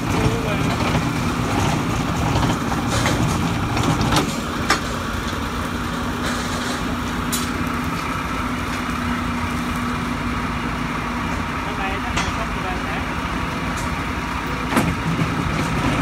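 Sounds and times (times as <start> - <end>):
heavy rumble: 0.0 - 16.0.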